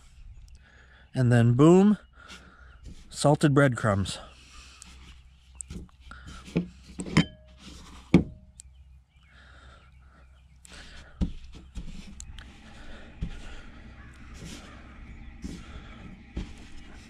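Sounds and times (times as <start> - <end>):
crumb rustling: 10.7 - 17.0.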